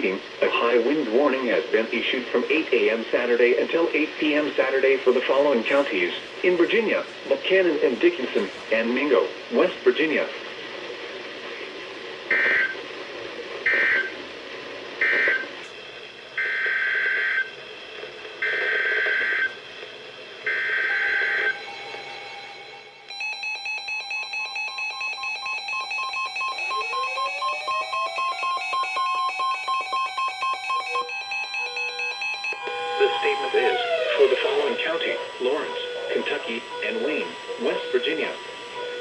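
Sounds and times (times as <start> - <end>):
rapid alert beeping tones: 23.2 - 39.0
rising siren-like tone: 26.6 - 29.4, 31.0 - 38.1
screechy radio data bursts: 32.6 - 39.0.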